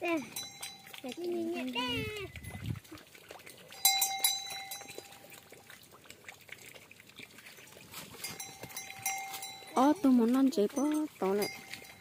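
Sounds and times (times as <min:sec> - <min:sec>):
cattle bell clanking: 0:00.0 - 0:02.8, 0:03.4 - 0:05.4, 0:07.5 - 0:12.0.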